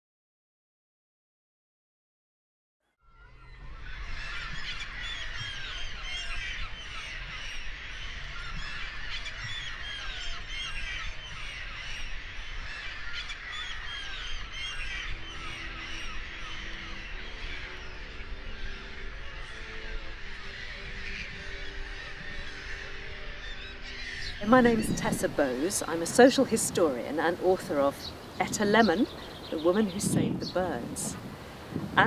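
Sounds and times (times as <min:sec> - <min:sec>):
seabird flock calling: 0:03.2 - 0:32.0
wind rumbling on microphone: 0:03.4 - 0:32.0
soft music with held notes: 0:13.9 - 0:32.0.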